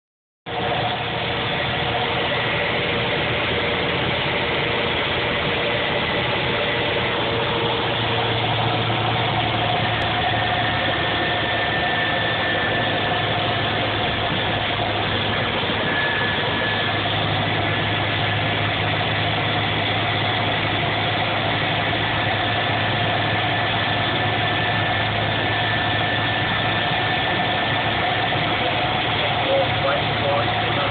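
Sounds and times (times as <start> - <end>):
vehicle interior road noise: 0.5 - 30.9.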